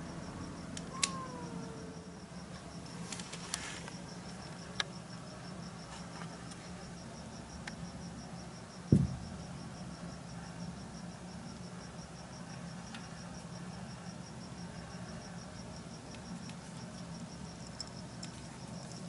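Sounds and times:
steady low hum: 0.0s - 19.0s
dull thump: 8.9s - 9.4s.

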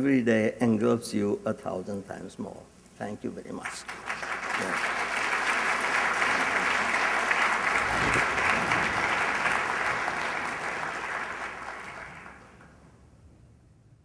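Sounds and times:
audience applauding: 3.6s - 12.8s.

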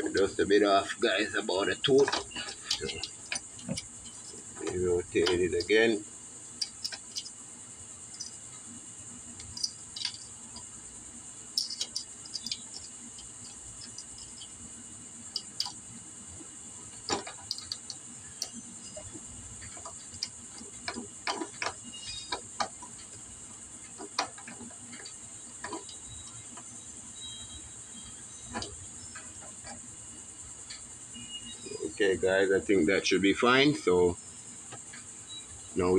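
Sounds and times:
metallic clicks and taps: 2.0s - 5.8s, 6.6s - 7.3s, 9.4s - 10.7s, 11.6s - 14.5s, 15.3s - 15.8s, 17.1s - 23.2s.

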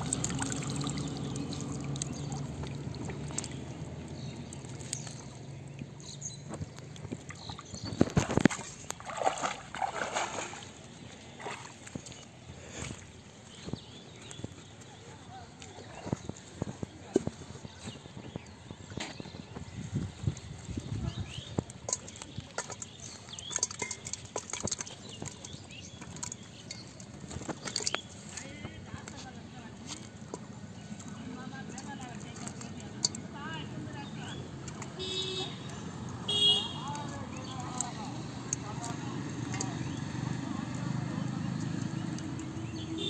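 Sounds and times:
muddy water splashing: 0.0s - 43.0s
fish dropping into metal pot: 21.7s - 28.1s.

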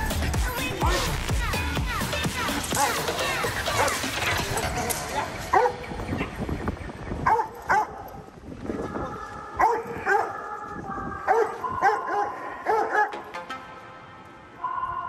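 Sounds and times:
dog barking: 2.7s - 3.0s, 5.5s - 6.3s, 7.2s - 8.1s, 9.6s - 10.5s, 11.3s - 13.2s.

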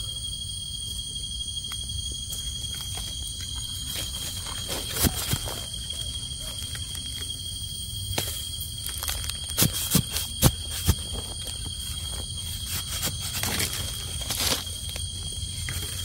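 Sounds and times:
high-pitched insect drone: 0.0s - 16.0s
twigs and leaves cracking and rustling: 2.7s - 7.3s, 8.1s - 16.0s.

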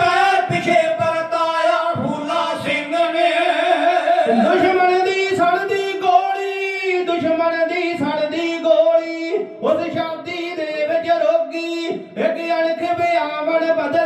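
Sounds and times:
group singing long high notes: 2.0s - 4.6s.

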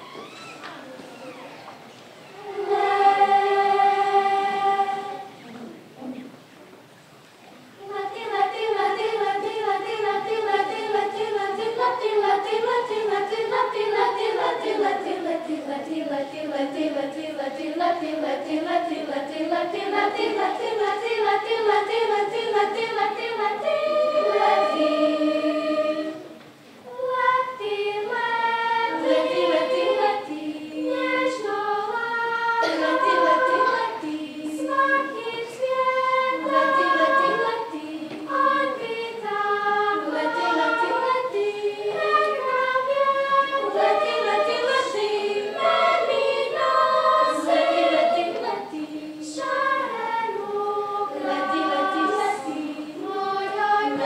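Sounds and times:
children's choir singing: 2.1s - 5.6s, 7.8s - 54.0s.

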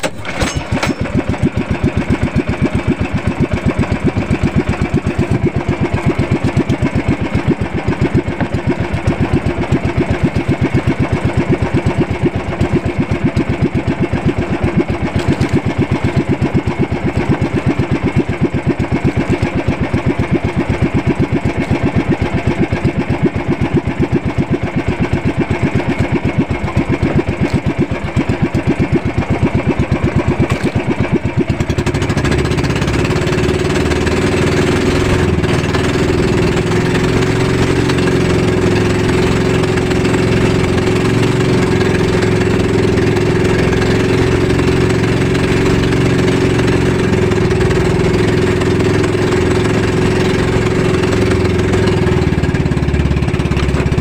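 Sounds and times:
boat engine chugging: 0.0s - 54.0s.

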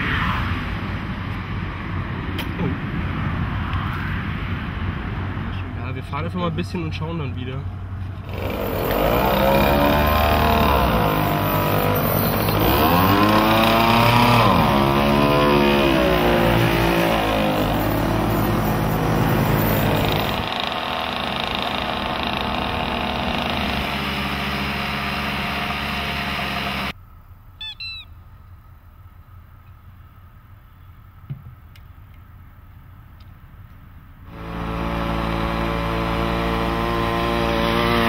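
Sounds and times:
moped engine revving: 8.2s - 27.0s, 34.3s - 38.0s
high chirps: 27.6s - 28.3s.

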